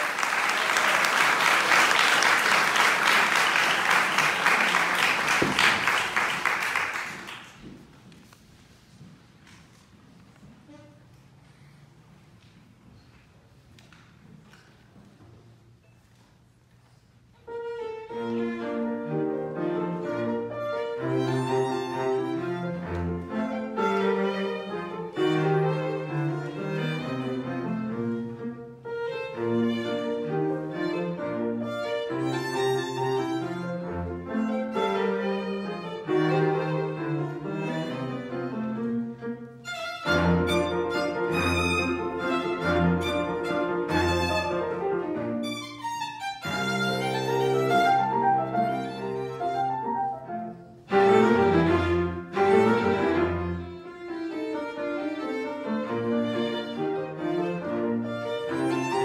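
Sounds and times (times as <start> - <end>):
bowed string instrument melody: 17.4 - 59.0.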